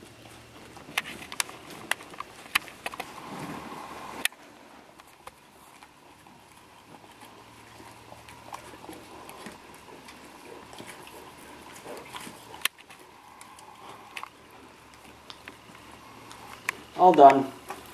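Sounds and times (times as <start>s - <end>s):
dog licking: 5.5s - 17.9s.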